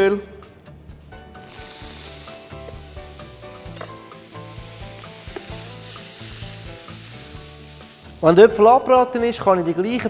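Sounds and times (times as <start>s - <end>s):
apple frying in oil sizzling: 1.4s - 8.8s.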